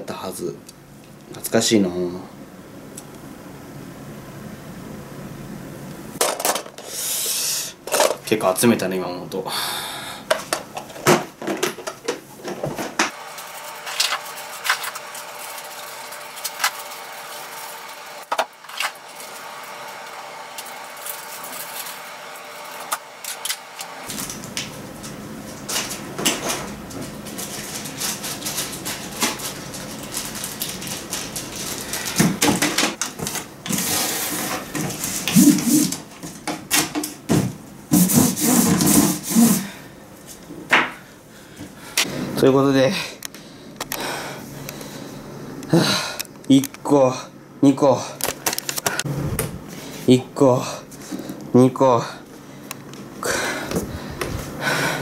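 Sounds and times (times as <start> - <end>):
plastic rustling: 10.7 - 36.3.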